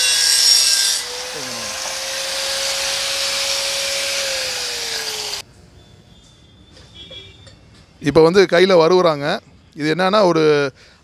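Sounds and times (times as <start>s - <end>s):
angle grinder grinding iron: 0.0s - 5.4s.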